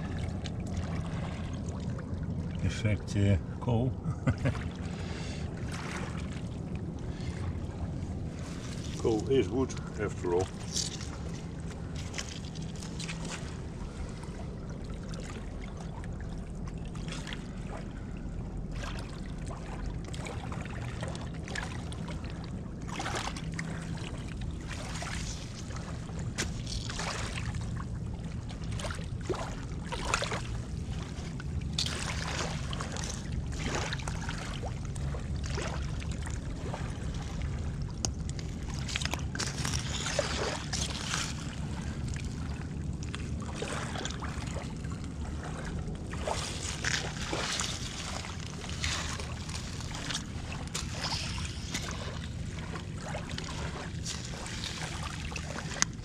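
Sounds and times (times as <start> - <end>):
low rumble: 0.0 - 56.0
boots crunching over stones and glass: 38.8 - 40.3.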